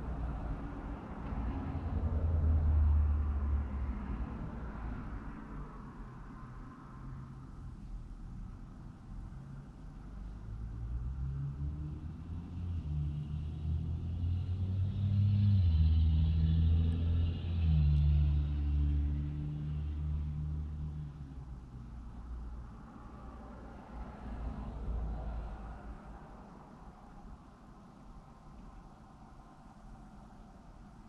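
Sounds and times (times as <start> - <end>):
vehicle engine rumble passing: 9.5 - 28.2.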